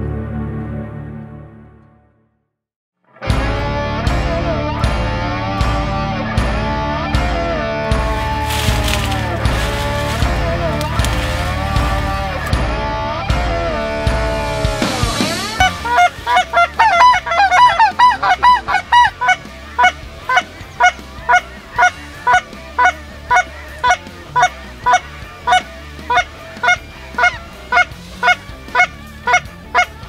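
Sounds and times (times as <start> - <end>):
goose honking: 8.1 - 12.5, 15.5 - 30.0.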